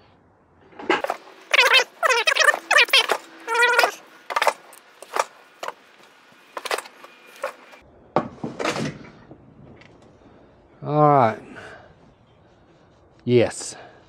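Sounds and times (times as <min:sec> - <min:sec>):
short pitched animal calls: 0:01.5 - 0:04.0.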